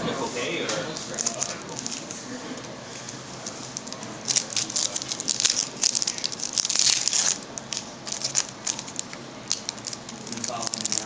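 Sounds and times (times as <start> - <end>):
foil wrapper crinkling and tearing: 1.0 - 2.2, 3.4 - 11.0.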